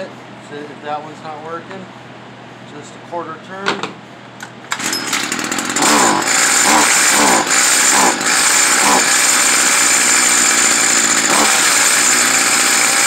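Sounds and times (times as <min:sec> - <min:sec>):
string trimmer engine revving: 0:04.7 - 0:13.0.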